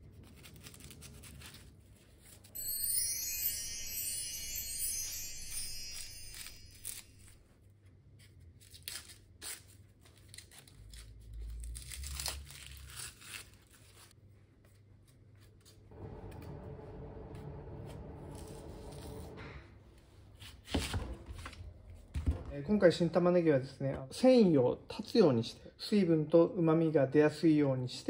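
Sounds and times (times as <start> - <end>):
onion skin crackling and tearing: 8.6 - 14.2
steady hum: 15.9 - 20.0.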